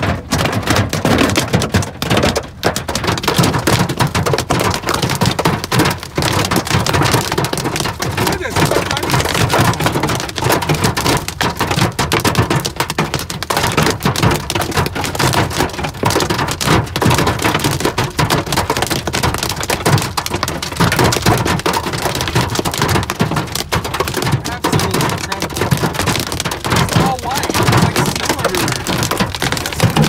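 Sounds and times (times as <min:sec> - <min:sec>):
hail and rain on car roof: 0:00.0 - 0:30.0.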